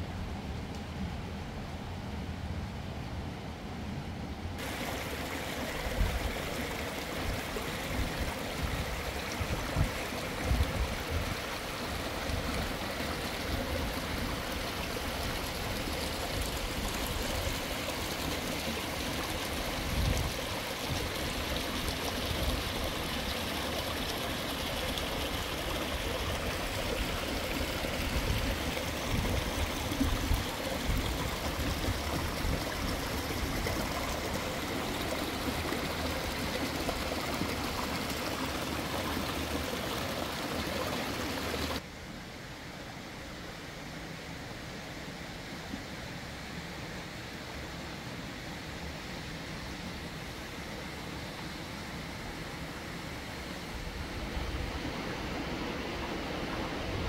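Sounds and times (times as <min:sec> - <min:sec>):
stream trickling over stones: 0:04.6 - 0:41.8.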